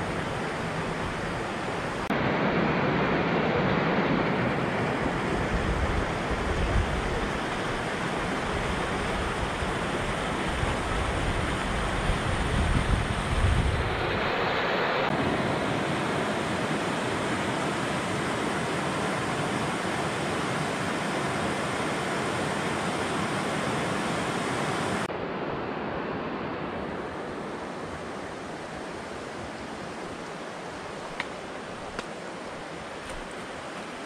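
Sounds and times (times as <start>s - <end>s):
stream rushing over rocks: 0.0s - 34.0s.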